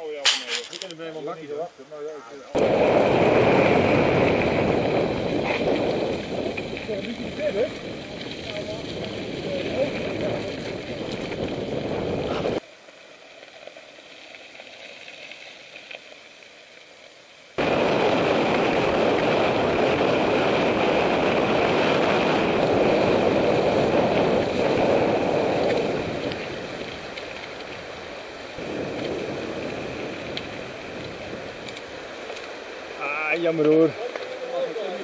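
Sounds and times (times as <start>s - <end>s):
tyres rolling over gravel: 0.0s - 35.0s
wind on microphone: 2.6s - 12.6s, 17.6s - 31.9s.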